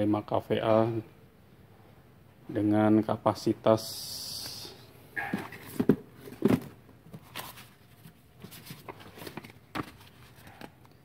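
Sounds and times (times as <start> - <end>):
cardboard box being moved: 5.2 - 10.6.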